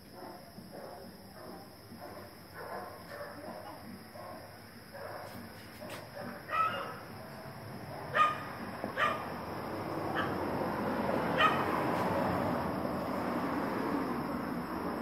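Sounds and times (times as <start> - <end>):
background noise: 0.0 - 15.0
dog barking: 0.1 - 9.3, 10.1 - 10.4, 11.4 - 11.8.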